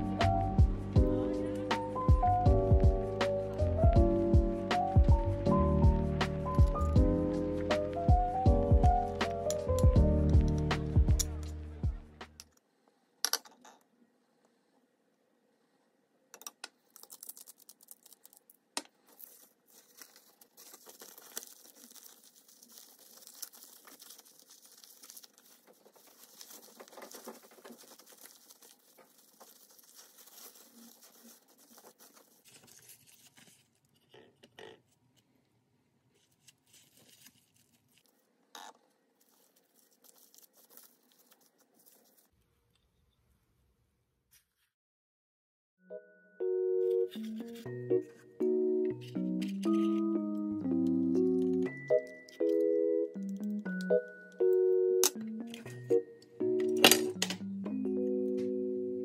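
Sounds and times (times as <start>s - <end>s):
cling film crinkling: 16.8s - 34.8s, 36.1s - 42.4s.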